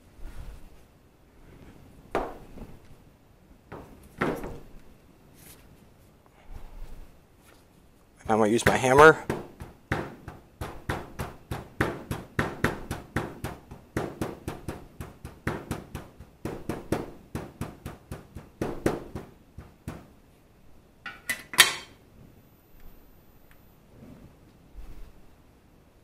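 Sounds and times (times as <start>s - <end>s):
hammer striking on a towel: 8.7s - 20.1s.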